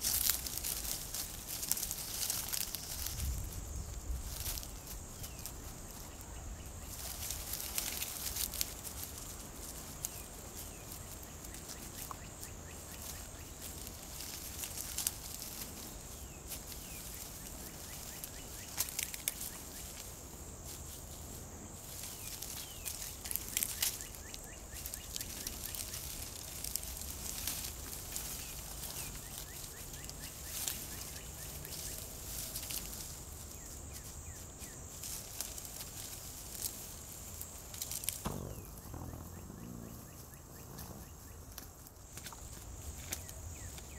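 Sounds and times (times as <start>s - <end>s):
rustling of dry leaves: 0.0s - 43.9s
sharp crunches: 37.4s - 43.4s.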